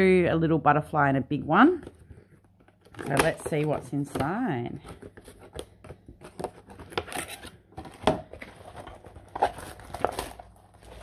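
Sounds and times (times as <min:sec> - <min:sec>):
plastic packaging crinkling: 0:04.8 - 0:11.0.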